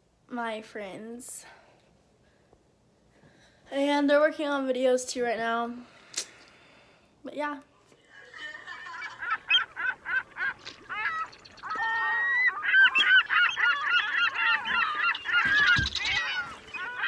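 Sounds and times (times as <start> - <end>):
geese honking: 9.0 - 17.0.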